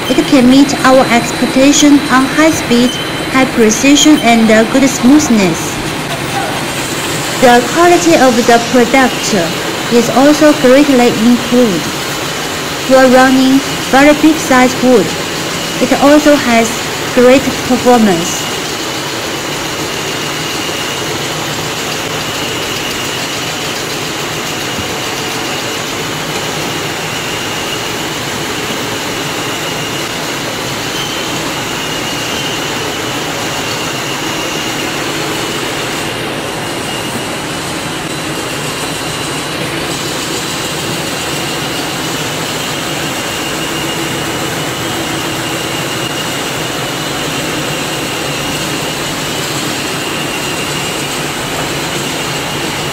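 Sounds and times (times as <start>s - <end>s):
thin high whine: 0.0s - 23.8s.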